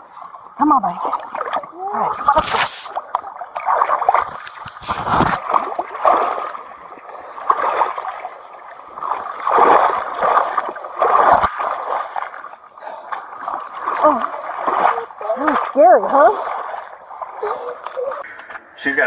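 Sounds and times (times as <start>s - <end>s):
water and mud sloshing: 0.0s - 18.3s
camera rubbing against skin: 2.4s - 2.9s, 4.7s - 5.4s.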